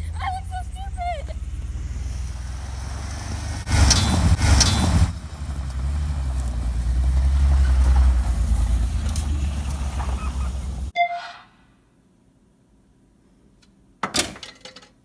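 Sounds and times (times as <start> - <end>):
van engine rumble: 0.0 - 10.9
loud rushing noise: 1.4 - 10.9.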